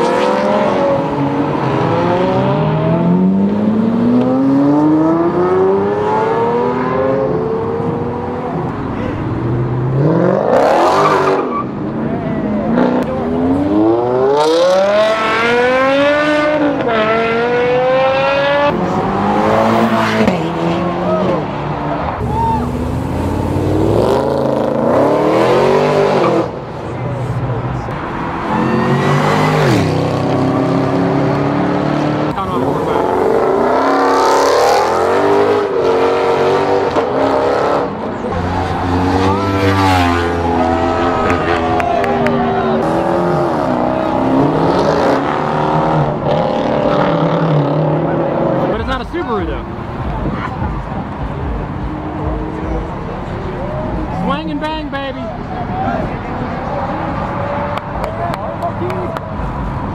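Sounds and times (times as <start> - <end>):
car engines revving and accelerating: 0.0 - 59.9
car engine accelerating hard: 12.6 - 26.6.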